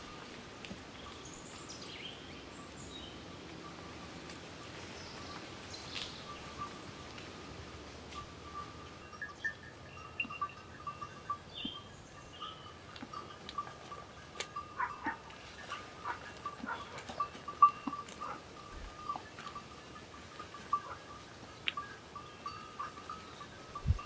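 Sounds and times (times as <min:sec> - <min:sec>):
small metal bells ringing: 0:08.1 - 0:24.0.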